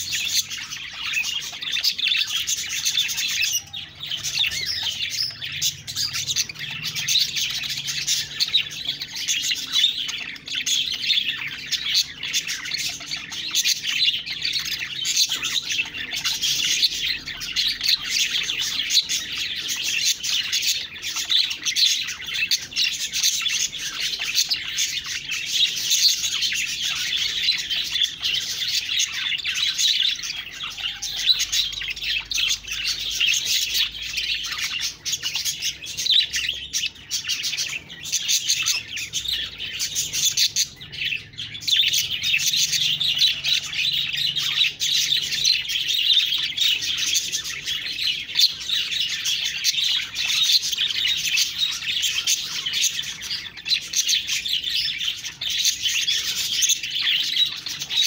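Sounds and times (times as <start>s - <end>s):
budgerigars chattering: 0.0s - 58.0s.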